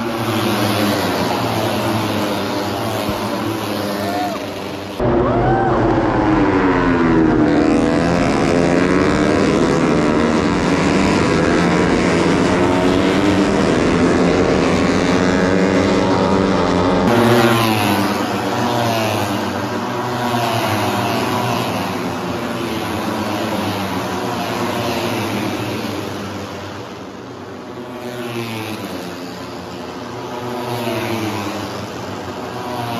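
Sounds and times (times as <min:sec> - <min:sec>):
racing motorcycle engines revving: 0:00.0 - 0:32.9.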